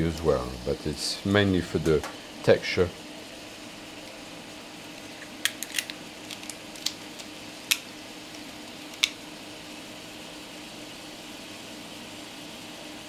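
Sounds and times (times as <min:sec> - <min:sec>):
low kitchen hum: 0:00.0 - 0:13.0
shell pieces and utensils clicking: 0:05.4 - 0:07.8.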